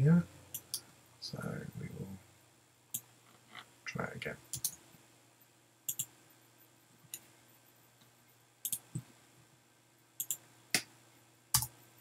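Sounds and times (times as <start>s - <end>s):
keyboard or mouse clicks: 0.5s - 0.8s, 4.5s - 4.8s, 5.9s - 6.2s, 8.0s - 9.1s, 10.2s - 10.9s, 11.6s - 11.8s.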